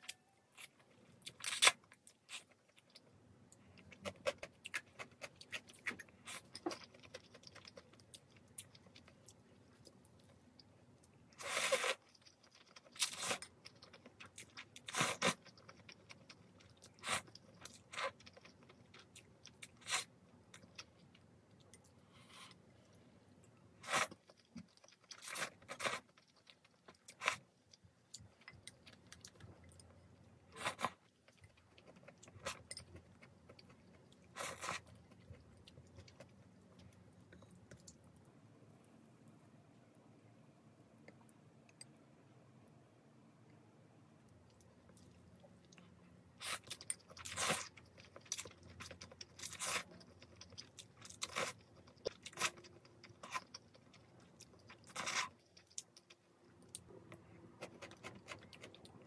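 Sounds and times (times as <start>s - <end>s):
chewing and mouth sounds: 44.5s - 59.0s.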